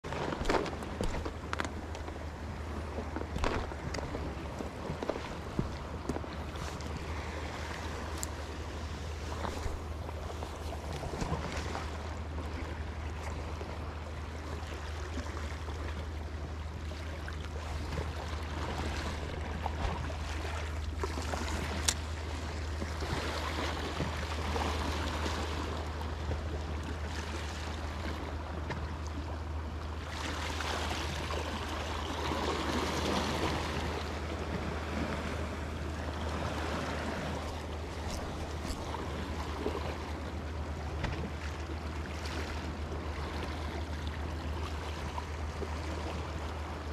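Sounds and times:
steady low hum: 0:00.0 - 0:24.4, 0:30.8 - 0:46.9
sea water lapping: 0:00.0 - 0:46.9.

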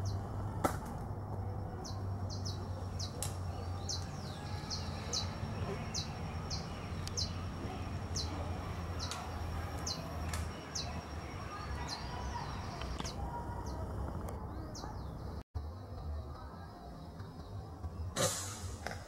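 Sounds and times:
small bird chirping: 0:01.6 - 0:15.4.

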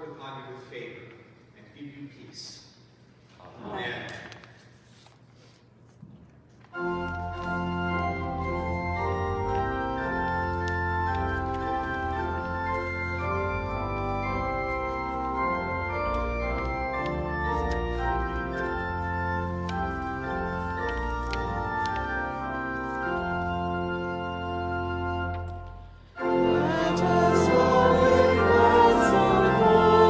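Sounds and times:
church organ chords: 0:06.7 - 0:30.0.

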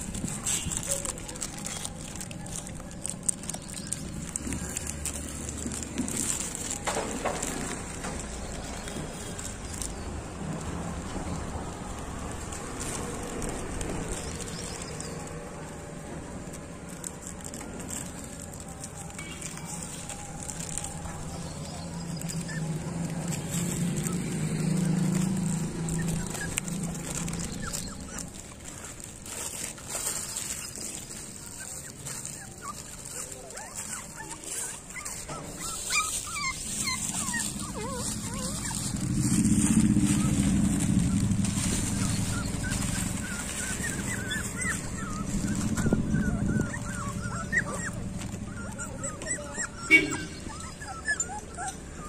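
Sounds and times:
puppies whimpering and crying: 0:00.0 - 0:52.0.

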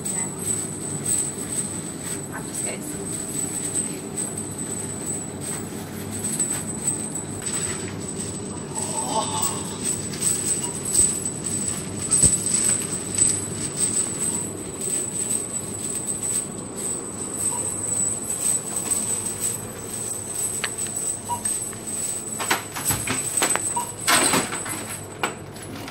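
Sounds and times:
steel chains clinking and rattling: 0:00.0 - 0:25.9.

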